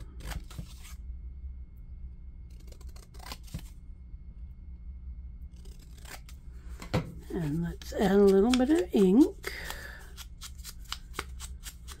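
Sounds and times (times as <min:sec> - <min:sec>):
scissors snipping cardstock: 0:05.6 - 0:12.0.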